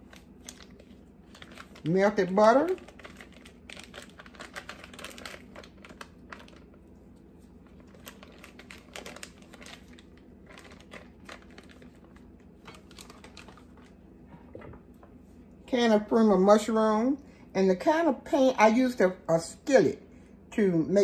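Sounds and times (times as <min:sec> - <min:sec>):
butter wrapper crinkling: 0:00.0 - 0:14.0.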